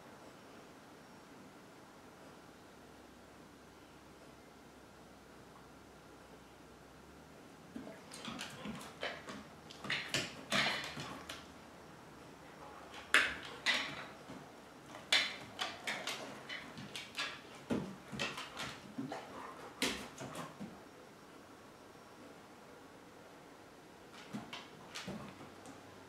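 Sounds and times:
knocks and clicks on floor: 12.9 - 20.7.

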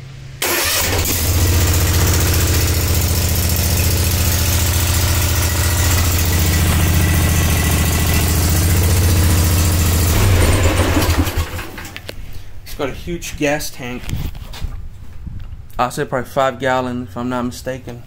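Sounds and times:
mower engine idling: 0.4 - 12.1.

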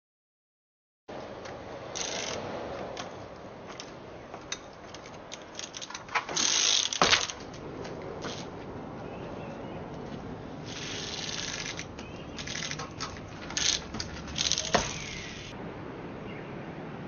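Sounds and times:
bicycle tyres clicking and tapping: 1.4 - 9.0, 10.7 - 15.6
bicycle landing thud: 6.1 - 7.5, 12.4 - 15.5.

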